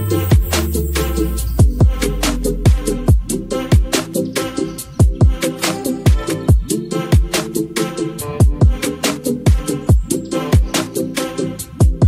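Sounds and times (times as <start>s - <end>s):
sliding bass drum notes: 0.0s - 7.6s
held chord pattern: 0.0s - 12.0s.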